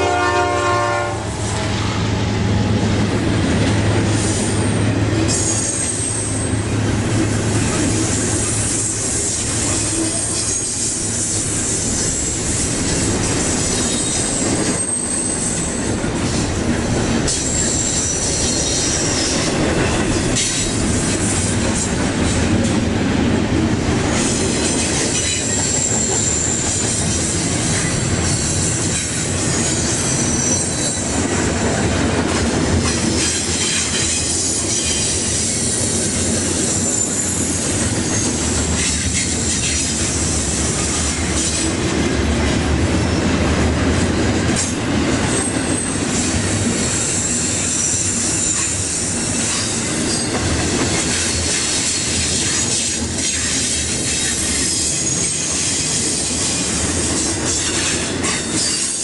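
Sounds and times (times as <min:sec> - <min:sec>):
rumble of train wheels on rail: 0:00.0 - 0:59.0
high-pitched wheel squeal: 0:05.3 - 0:06.5, 0:13.8 - 0:15.7, 0:29.5 - 0:31.1, 0:36.6 - 0:39.9, 0:58.2 - 0:59.0.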